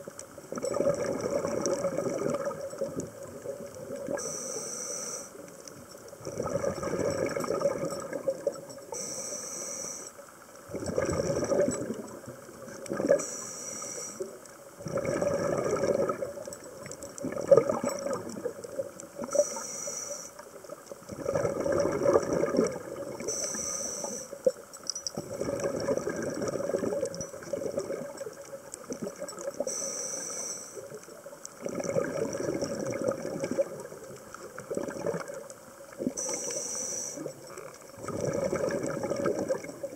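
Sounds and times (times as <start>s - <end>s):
exhaled bubbles rushing: 0.5s - 4.2s, 6.2s - 8.6s, 10.7s - 13.2s, 14.8s - 19.4s, 21.1s - 23.3s, 25.2s - 29.6s, 31.6s - 36.2s, 37.2s - 39.9s
regulator inhale hiss: 4.2s - 5.5s, 8.9s - 10.3s, 13.2s - 14.4s, 19.3s - 20.6s, 23.2s - 24.5s, 29.6s - 31.0s, 36.2s - 37.4s.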